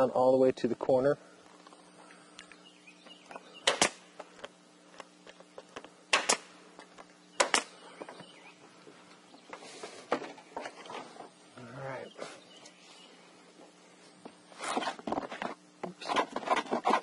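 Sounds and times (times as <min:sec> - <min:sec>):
nail gun firing: 0:03.6 - 0:04.0, 0:06.1 - 0:06.5, 0:07.4 - 0:07.7.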